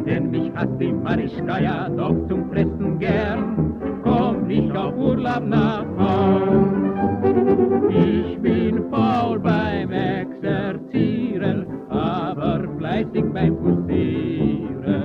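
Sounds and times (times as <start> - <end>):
man singing with vibrato: 0.0 - 6.9, 7.9 - 15.0
dance orchestra playing: 3.0 - 9.0.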